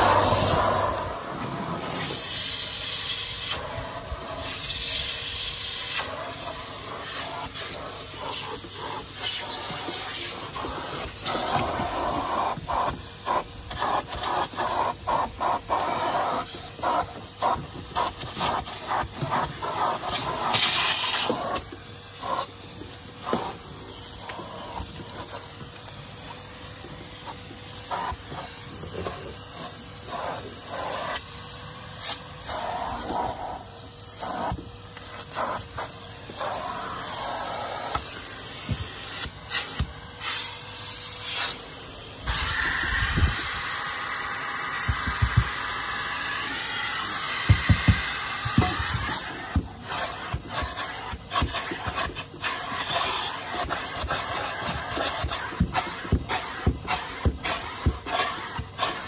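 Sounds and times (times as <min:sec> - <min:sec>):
vacuum cleaner suction hiss: 0:00.0 - 0:59.0
nozzle knocking and rubbing: 0:44.8 - 0:45.7, 0:47.4 - 0:52.5.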